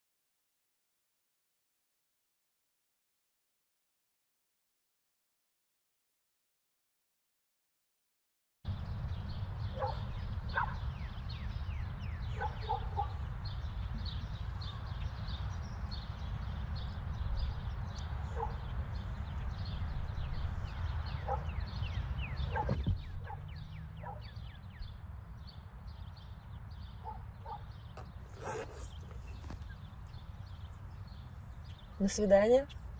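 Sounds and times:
small birds chirping: 8.7 - 32.9.

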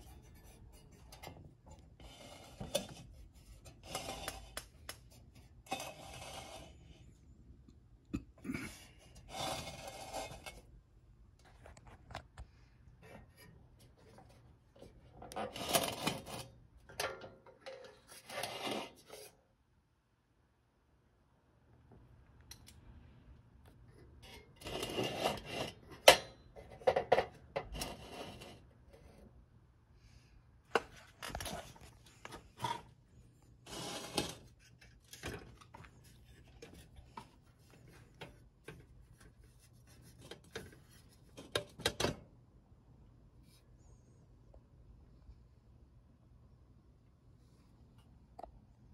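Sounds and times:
metal rubbing and scraping: 9.2 - 10.7, 17.7 - 19.3, 24.2 - 26.0, 31.2 - 41.5.

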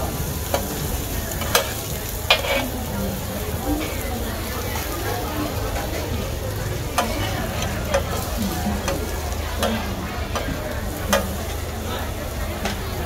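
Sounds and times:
frying sizzle: 0.0 - 13.0
metal spatulas scraping pan: 1.4 - 2.8.

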